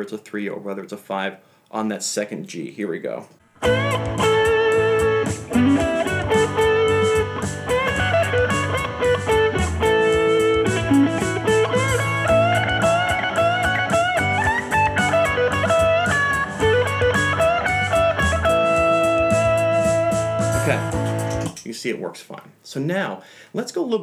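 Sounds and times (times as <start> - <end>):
electric guitar lead solo: 3.6 - 21.0
backing track with steady beat: 3.6 - 21.6.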